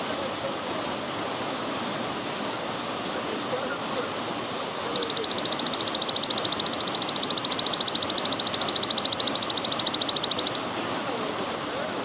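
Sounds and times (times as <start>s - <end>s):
grasshopper pulsing trill: 4.9s - 10.6s
trickling water: 4.9s - 10.6s.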